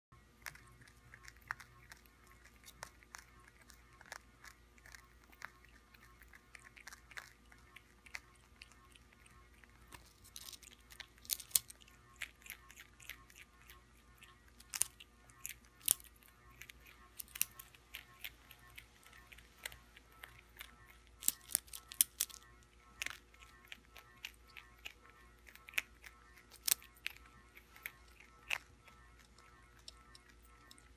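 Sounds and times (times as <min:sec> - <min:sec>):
quiet nibbling: 0:00.1 - 0:30.9
crisp crunching of chip: 0:00.4 - 0:30.9.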